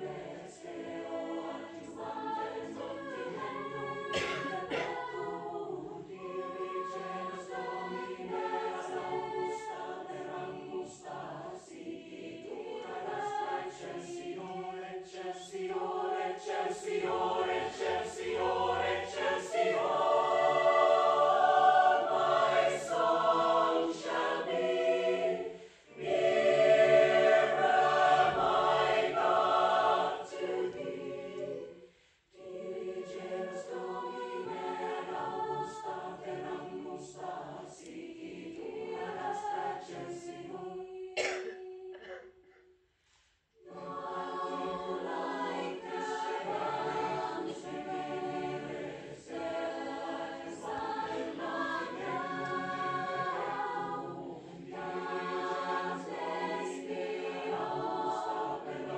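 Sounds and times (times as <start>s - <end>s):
mixed choir singing: 0.0s - 42.2s, 43.6s - 58.9s.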